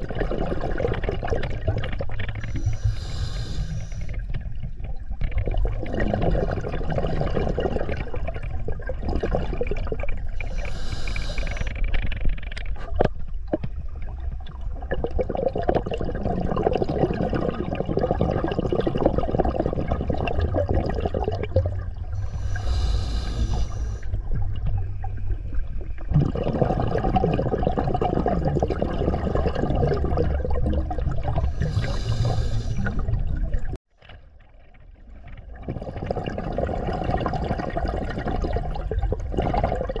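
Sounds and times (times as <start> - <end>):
exhaled bubbles gushing: 0.0 - 2.8, 4.2 - 33.8, 35.0 - 40.0
hissing regulator inhalations: 2.5 - 4.3, 10.4 - 12.0, 22.2 - 24.2, 31.4 - 33.1.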